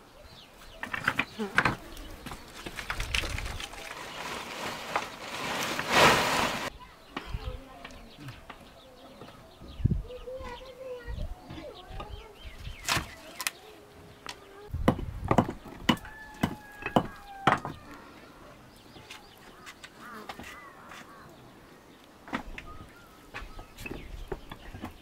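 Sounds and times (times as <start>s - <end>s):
faint bird calls: 16.0s - 22.0s.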